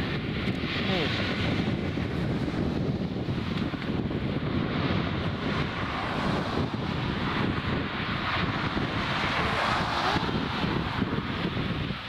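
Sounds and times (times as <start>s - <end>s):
jet engines rushing: 0.0s - 12.0s.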